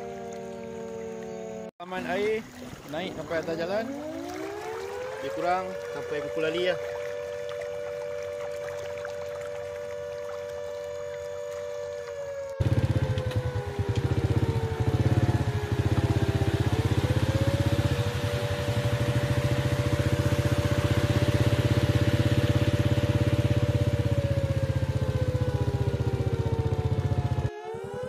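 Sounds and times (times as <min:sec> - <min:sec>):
small motorcycle engine running: 0:02.9 - 0:28.0.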